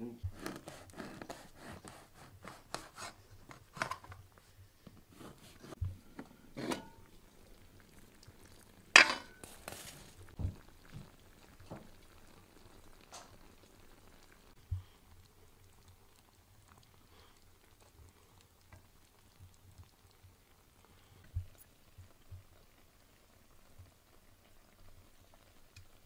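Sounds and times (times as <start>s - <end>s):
knife cutting bread: 0.3s - 3.9s, 5.1s - 5.8s
glass lid clinking on pot: 9.0s - 9.4s.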